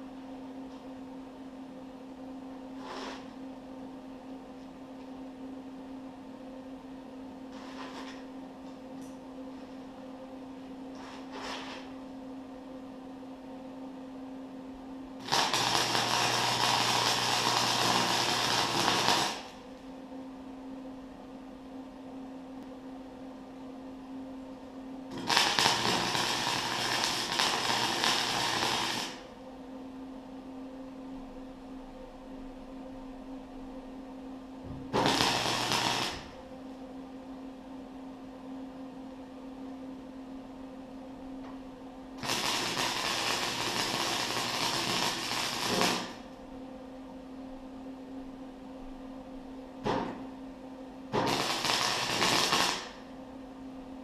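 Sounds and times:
steady hum: 0:00.0 - 0:54.0
crackling welding arc: 0:07.6 - 0:08.2, 0:15.2 - 0:19.6, 0:25.1 - 0:29.3, 0:34.9 - 0:36.4, 0:42.2 - 0:46.3, 0:51.2 - 0:53.0.

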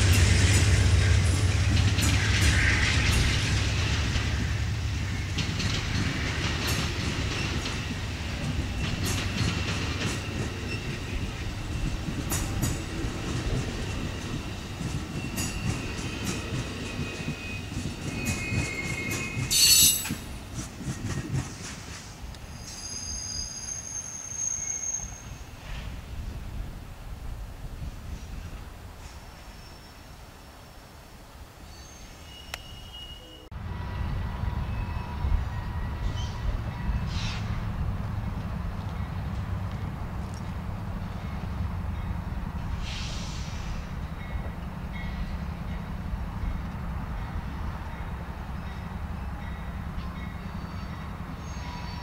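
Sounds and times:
train wheels clicking over rail joints: 0:00.0 - 0:22.8
high wheel squeal: 0:10.1 - 0:11.4, 0:15.1 - 0:20.3, 0:22.5 - 0:25.5, 0:31.7 - 0:33.5.

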